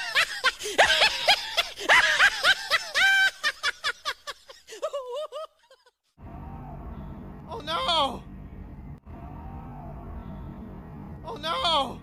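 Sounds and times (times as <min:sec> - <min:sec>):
person cackling laugh: 0:00.0 - 0:06.0.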